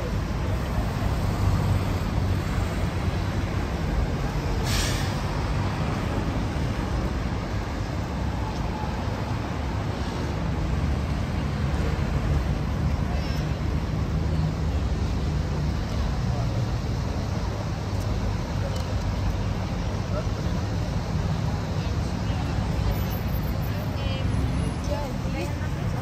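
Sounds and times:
traffic rumble: 0.0s - 26.0s
short hiss: 4.6s - 5.2s.

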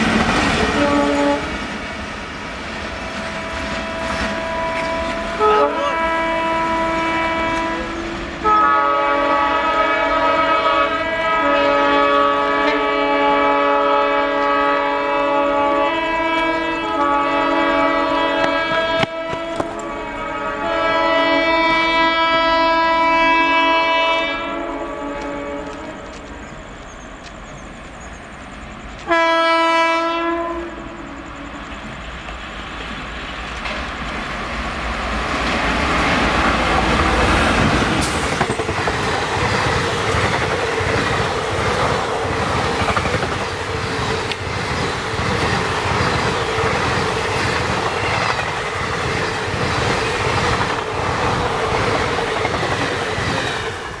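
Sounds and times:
train passing at speed: 0.0s - 54.0s
locomotive horn blasts: 0.6s - 1.6s, 3.0s - 26.2s, 29.0s - 31.6s
train wheel clatter: 31.6s - 54.0s.

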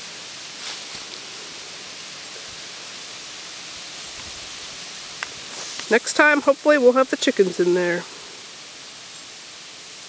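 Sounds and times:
outdoor background hiss: 0.0s - 10.0s.

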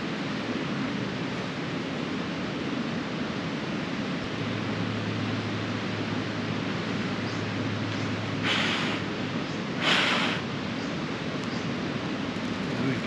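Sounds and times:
river rushing: 0.0s - 13.0s
short hisses: 8.4s - 9.1s, 9.8s - 10.5s.

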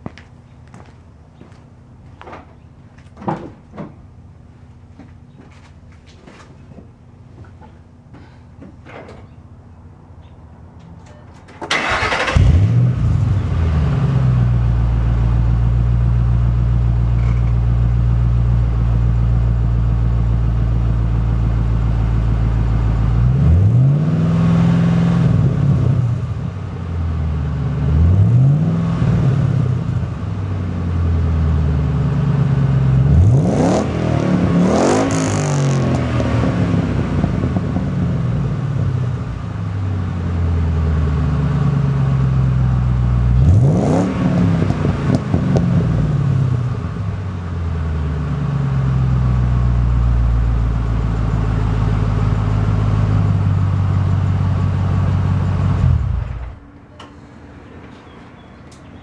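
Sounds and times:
car engine starting: 11.6s - 59.0s
car engine idling: 14.4s - 23.3s, 44.6s - 59.0s
car engine revving: 33.0s - 39.2s, 43.3s - 46.8s.

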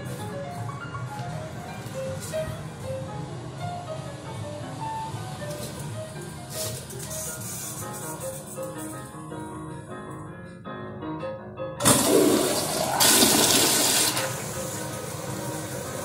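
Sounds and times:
toilet flushing: 11.8s - 16.0s
water rushing: 11.8s - 16.0s.

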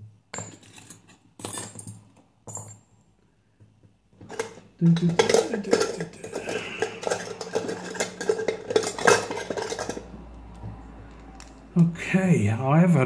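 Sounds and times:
metal lockpicking tools clinking: 0.3s - 2.8s.

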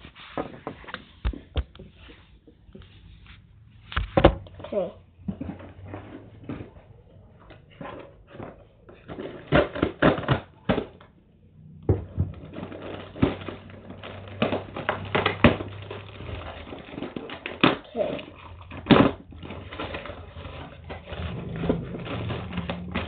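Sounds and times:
cardboard box crackling and scraping: 12.3s - 23.0s.

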